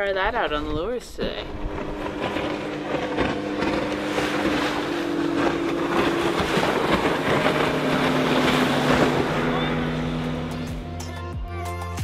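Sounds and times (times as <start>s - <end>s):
wind: 0.0s - 11.2s
outboard motor running: 0.0s - 11.3s
rushing water: 1.5s - 11.0s.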